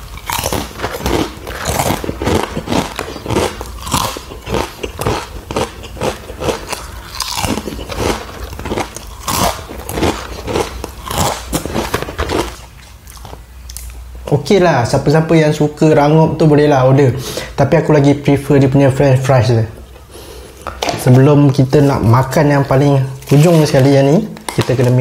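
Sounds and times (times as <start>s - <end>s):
crunching and chewing fries: 0.0s - 14.0s, 23.2s - 25.0s.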